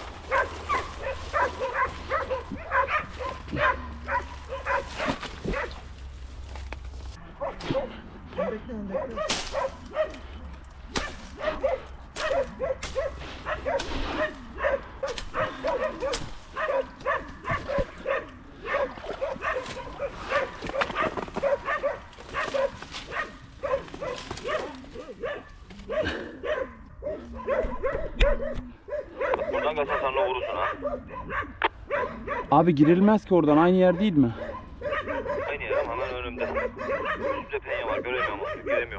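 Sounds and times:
dogs barking: 0.0 - 6.1, 7.2 - 38.9
brush and twigs crackling: 0.0 - 7.8, 9.2 - 26.0.

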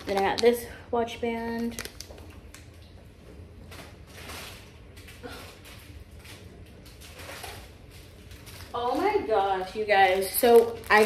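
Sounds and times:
items handled on counter: 0.0 - 2.7
plastic packaging rustling: 0.0 - 2.9, 3.6 - 11.0.

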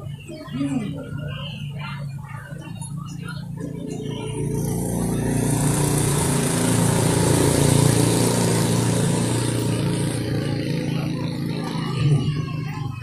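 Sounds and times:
engine running: 0.0 - 13.0.

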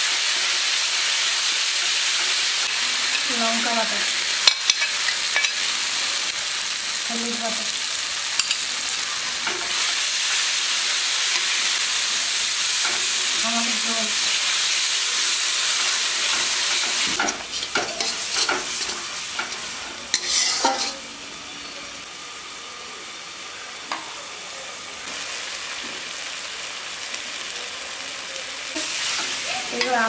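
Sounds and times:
spice paste frying in hot oil: 0.0 - 30.0
spatula scraping and knocking pan: 16.2 - 21.0.

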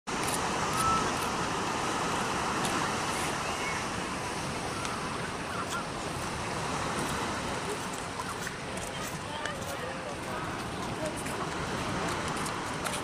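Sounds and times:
surf breaking over rocks: 0.1 - 13.0.

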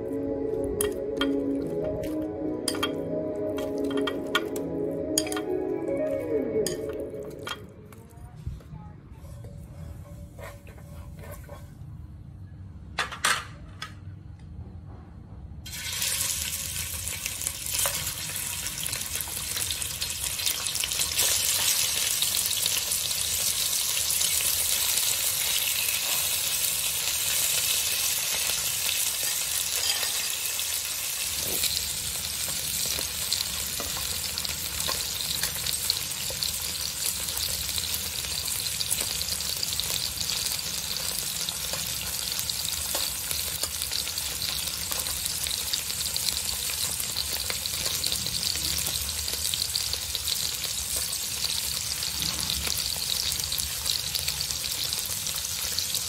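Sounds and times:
ribs sizzling in hot oil: 15.7 - 56.0.

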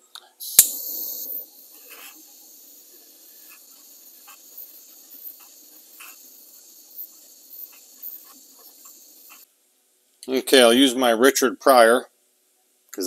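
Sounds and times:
torch flame hissing: 0.4 - 9.5.

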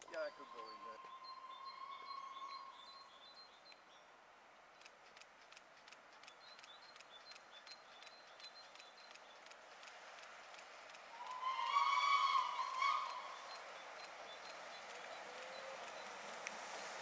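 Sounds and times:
steam locomotive whistle: 0.3 - 3.1, 11.1 - 13.6
steam train clicking: 4.8 - 17.0.

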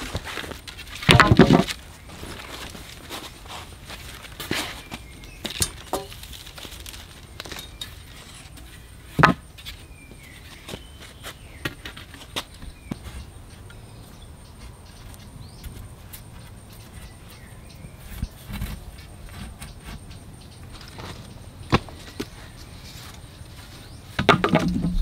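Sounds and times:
wooden poles knocking together: 0.4 - 1.8, 4.4 - 9.7, 24.1 - 25.0
dull thuds: 24.2 - 25.0.

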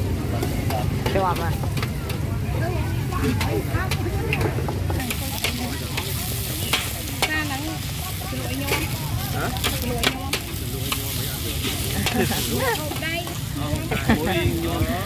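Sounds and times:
food sizzling: 0.0 - 15.0
metal spatula scraping a wok: 5.0 - 13.6.

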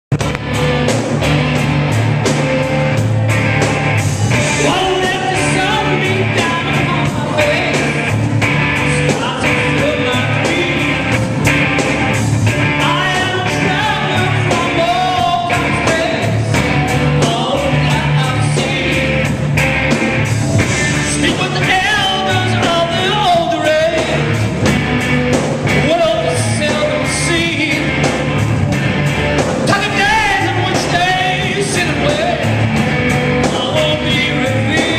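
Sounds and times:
electric bass: 0.0 - 34.9
drum kit beat: 0.1 - 34.9
electric guitar: 0.1 - 34.9
male singer: 4.4 - 11.3, 12.7 - 19.3, 21.0 - 24.3, 25.8 - 28.1, 29.6 - 32.6, 33.3 - 34.9.

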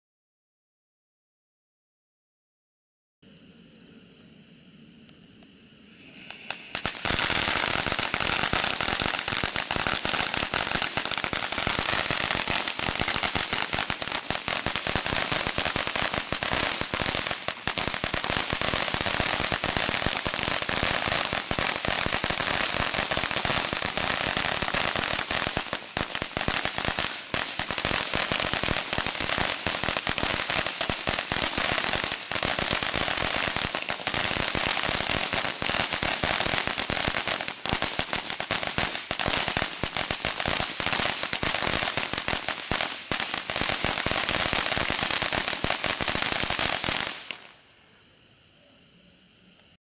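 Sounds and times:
firework fountain crackling: 5.9 - 47.6.

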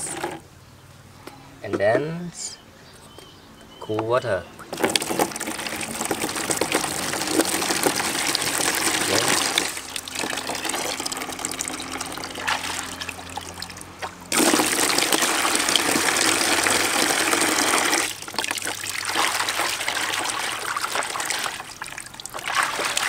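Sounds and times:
water pouring into plastic basin: 4.6 - 23.0.

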